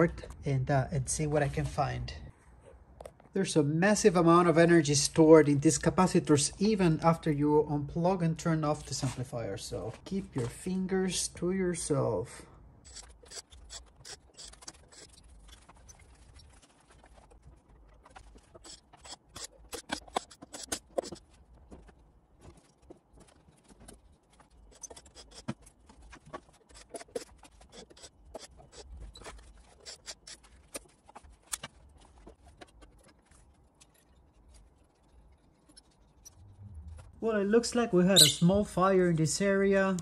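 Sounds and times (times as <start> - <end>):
metal parts clicking and scraping: 12.8 - 21.3, 23.2 - 37.1.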